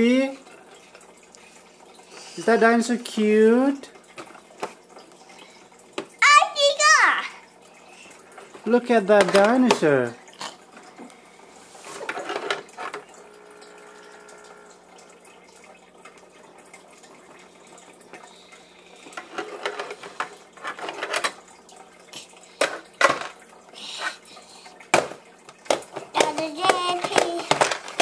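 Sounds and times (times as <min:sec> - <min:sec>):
plastic toy tapping on tray: 0:25.7 - 0:28.0.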